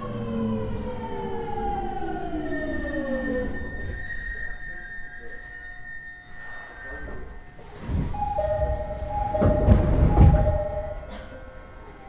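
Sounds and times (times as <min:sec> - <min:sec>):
two-note electronic door chime: 0:06.1 - 0:12.0
sliding doors rumbling: 0:07.6 - 0:12.0.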